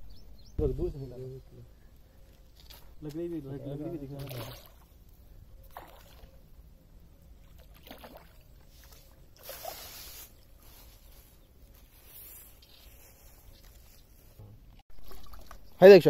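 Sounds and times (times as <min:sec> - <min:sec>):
fish splashing at water surface: 0:05.7 - 0:06.4, 0:07.5 - 0:10.3, 0:15.0 - 0:15.6.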